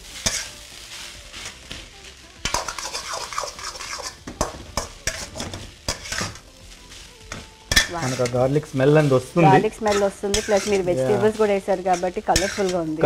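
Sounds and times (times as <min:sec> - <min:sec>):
ladle scraping wok: 0:00.0 - 0:13.0
light sizzle: 0:00.0 - 0:13.0.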